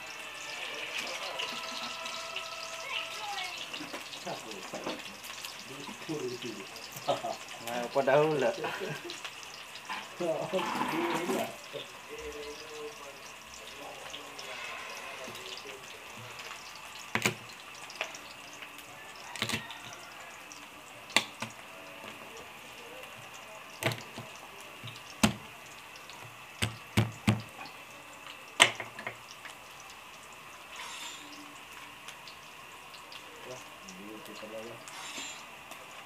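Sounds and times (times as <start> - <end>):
onion sizzling in oil: 0.0 - 36.0.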